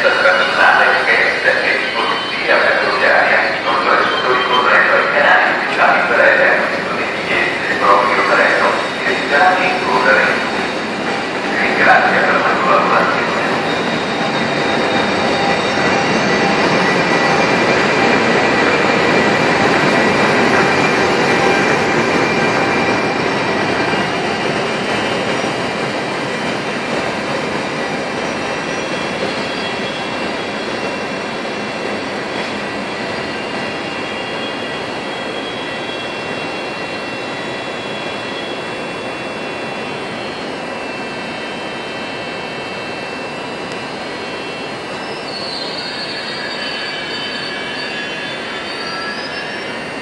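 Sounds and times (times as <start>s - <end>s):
train running noise: 0.0s - 50.0s
wheels and brakes squealing: 6.4s - 50.0s.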